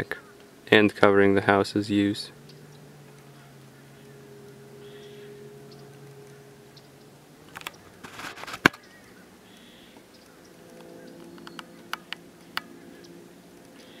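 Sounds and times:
faint steady hum: 0.0s - 14.0s
short rustle: 7.7s - 8.8s
sharp clicks and taps: 10.0s - 12.7s.

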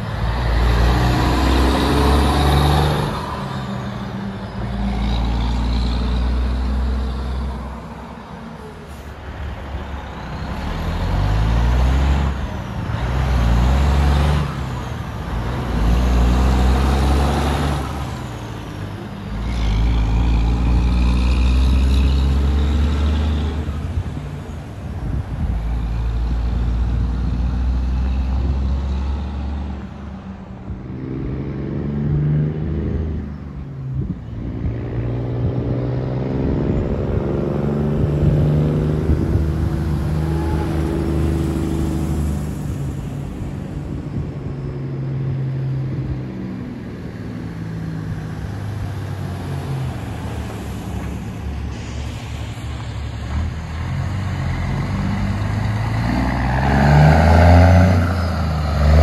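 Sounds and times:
dump truck engine shifting gears: 0.0s - 29.9s, 30.8s - 59.0s
truck engine approaching: 0.0s - 59.0s.

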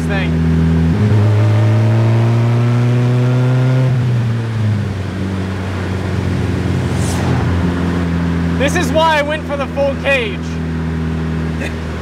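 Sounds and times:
car engine accelerating: 0.0s - 12.0s
wind rushing past: 5.8s - 8.6s.

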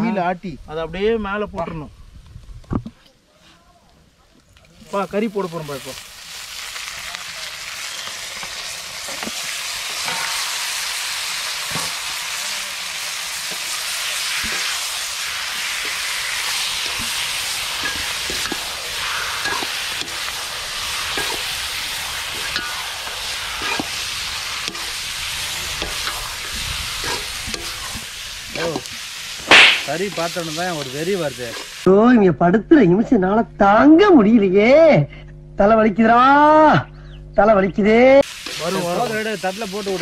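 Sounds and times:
chicken sizzling in hot oil: 4.8s - 31.9s, 38.2s - 40.0s.

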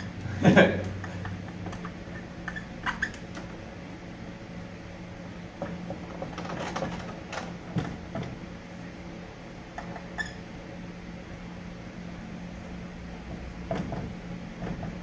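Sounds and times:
marker squeaking on a whiteboard: 1.1s - 3.5s, 9.9s - 10.4s.

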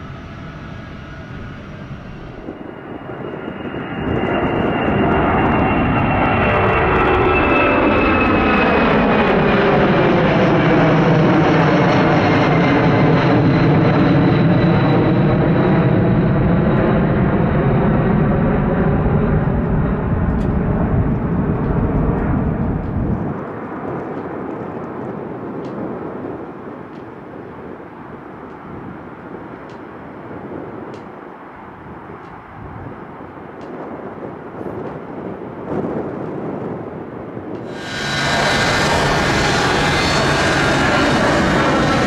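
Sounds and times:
jet aircraft passing overhead: 0.0s - 26.7s, 37.1s - 42.0s.

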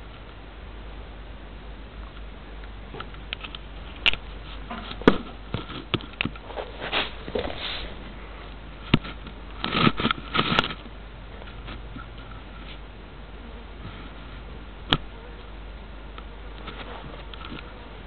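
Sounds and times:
kitten sniffing: 6.5s - 8.7s.

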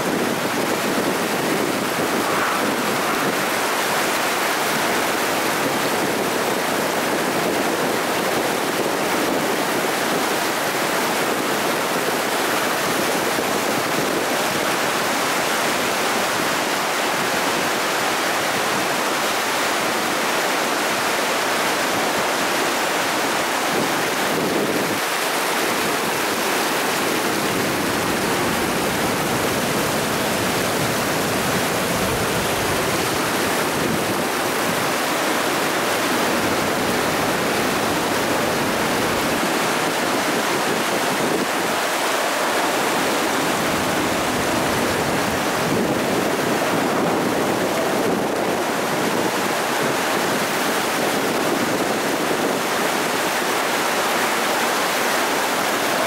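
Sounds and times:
floodwater rushing: 0.0s - 56.0s.

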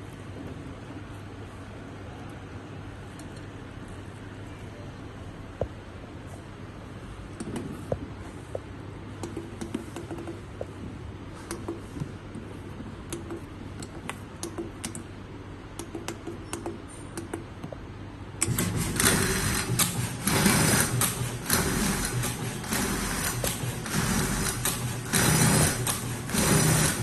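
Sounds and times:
keypad buttons clicking: 9.2s - 10.5s, 13.1s - 15.1s, 15.7s - 17.8s
cutting machine running: 18.4s - 27.0s.

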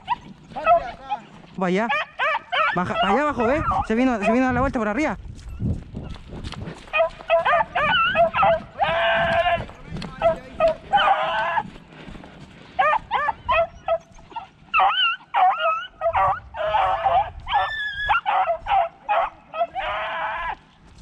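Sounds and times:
dogs yelping and baying: 0.0s - 4.5s, 6.8s - 11.8s, 12.7s - 20.6s
dog howling: 1.9s - 4.4s, 7.0s - 11.8s, 12.8s - 20.6s.

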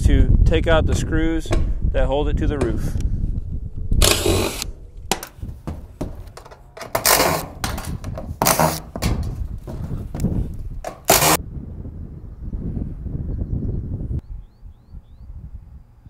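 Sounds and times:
cordless driver removing screws: 4.0s - 9.4s, 10.9s - 11.4s
metal clicks and knocks: 4.0s - 11.4s.

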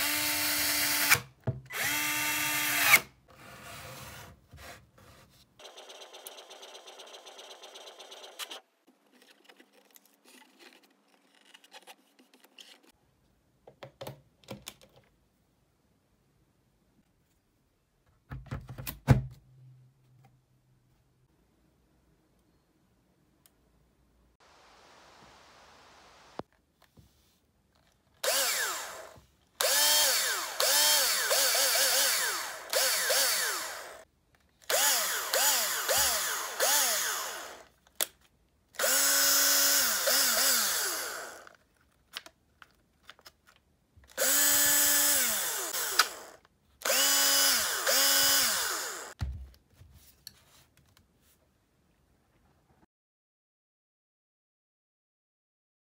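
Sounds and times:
cordless drill motor whine: 0.0s - 3.0s, 28.2s - 34.0s, 34.7s - 37.7s, 38.8s - 41.6s, 44.2s - 49.2s.

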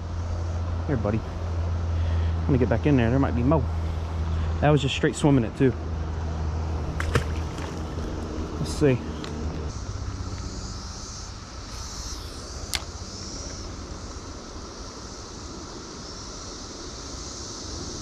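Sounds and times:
flowing river water: 6.8s - 8.7s
sharp click: 11.7s - 13.6s.

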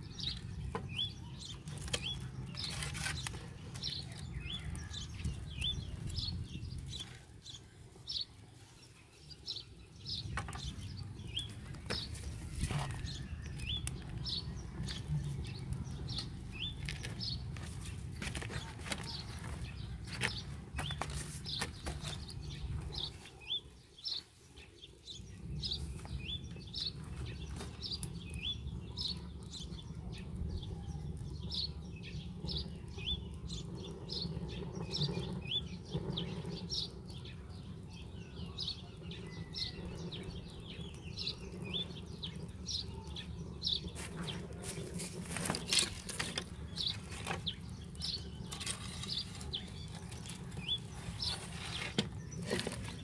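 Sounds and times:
small bird chirping: 0.0s - 53.0s
steady low rumble: 10.1s - 23.2s.

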